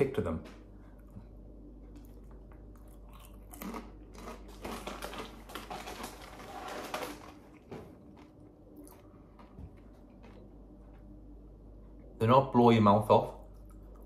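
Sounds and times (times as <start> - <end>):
crunchy chewing of chips: 1.9 - 11.2.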